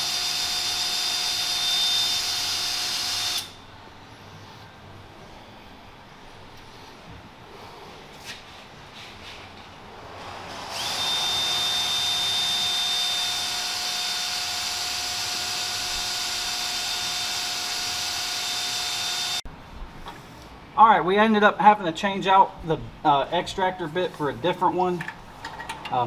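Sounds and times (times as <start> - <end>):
cordless drill whining: 0.0 - 3.6, 10.5 - 19.4.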